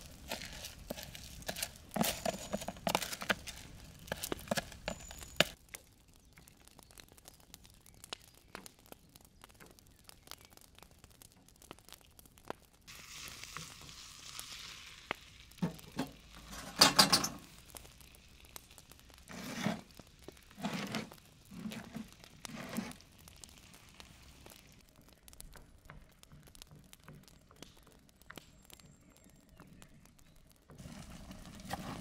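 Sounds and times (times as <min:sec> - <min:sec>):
food sizzling in a frying pan: 0:12.8 - 0:24.8
metal cookware clattering: 0:15.6 - 0:17.5.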